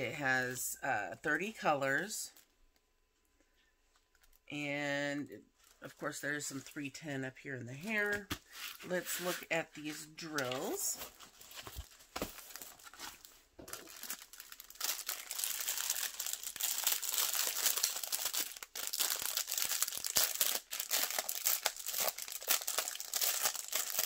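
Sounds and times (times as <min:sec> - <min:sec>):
plastic bag crinkling: 0:04.0 - 0:04.5, 0:07.9 - 0:24.0.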